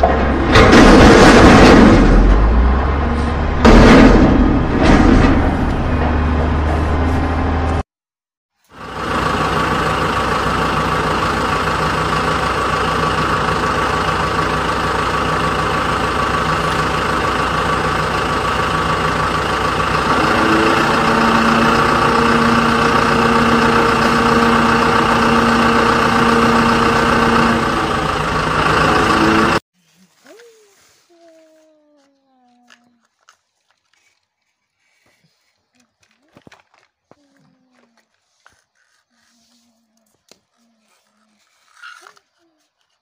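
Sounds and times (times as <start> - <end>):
heavy engine idling: 8.7 - 29.6.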